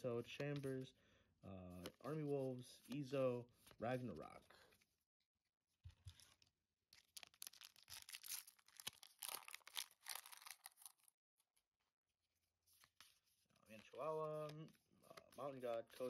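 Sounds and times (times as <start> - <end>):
foil pack being torn and crinkled: 6.9 - 11.1.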